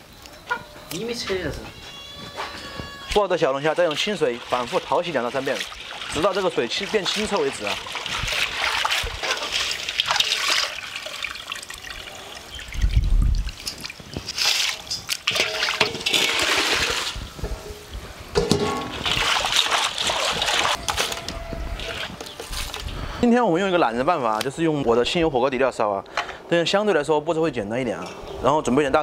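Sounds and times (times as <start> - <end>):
water splashing in metal basin: 3.2 - 21.2.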